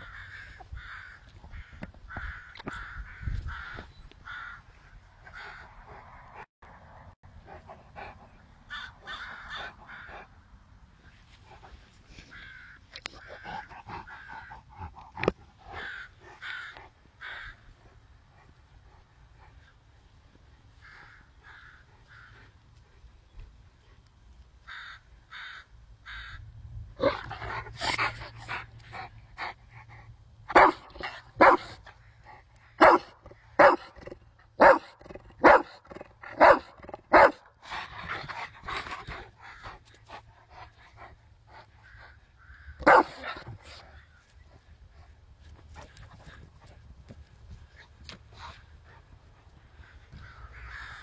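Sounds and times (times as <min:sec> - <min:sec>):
dog barking: 0:30.5 - 0:30.8, 0:31.4 - 0:31.8, 0:32.8 - 0:33.9, 0:34.6 - 0:35.8, 0:36.4 - 0:37.4, 0:42.8 - 0:43.4.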